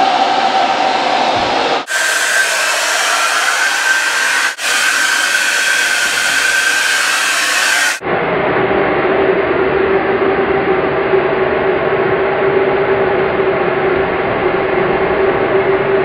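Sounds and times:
hair dryer blowing: 1.8 - 8.0.

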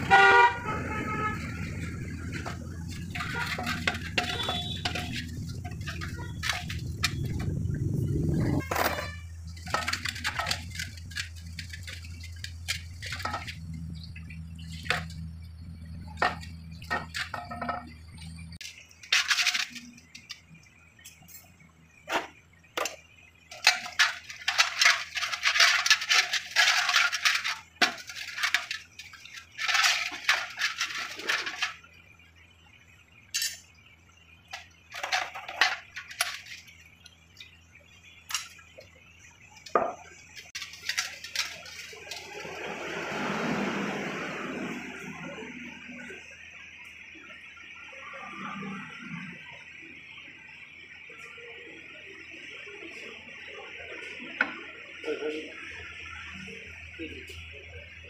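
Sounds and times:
small steel parts clinking: 1.8 - 7.6, 8.4 - 15.3, 15.9 - 31.9, 33.3 - 33.8, 34.5 - 37.5, 38.2 - 38.9, 39.6 - 42.5.

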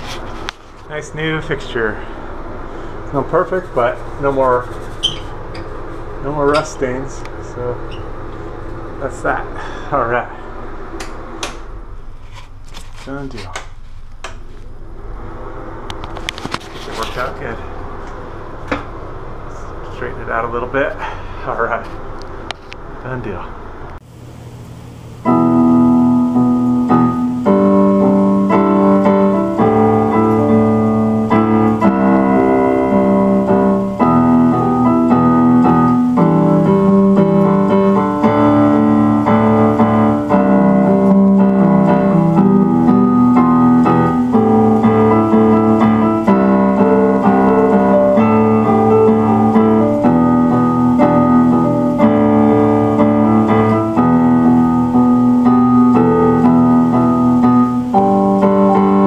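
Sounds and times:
piano music: 0.0 - 12.0, 25.2 - 59.0.

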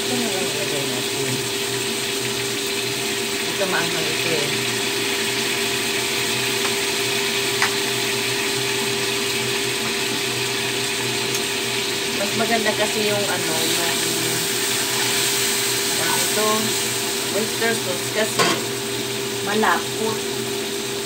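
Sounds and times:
tofu sizzling in hot oil: 0.0 - 21.0
spatula scraping in pan: 13.4 - 17.0.

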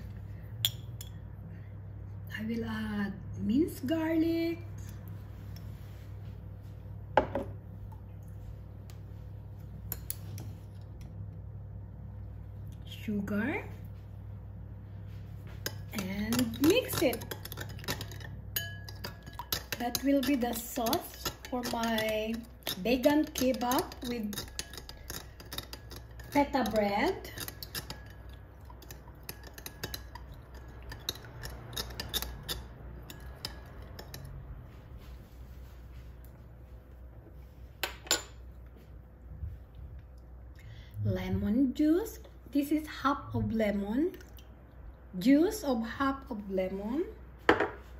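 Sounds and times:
steady low hum: 0.0 - 47.9
metal spoon clinking in glass bowl: 0.6 - 1.2, 15.6 - 34.3.

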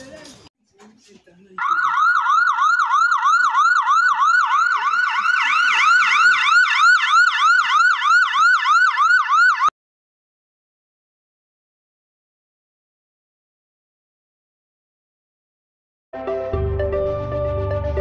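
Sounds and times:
siren yelping: 1.6 - 9.7.

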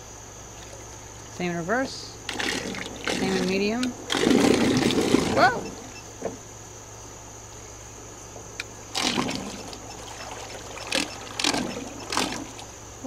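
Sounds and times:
low electric motor hum: 0.0 - 13.0
propeller churning water: 0.5 - 6.0, 8.8 - 13.0.

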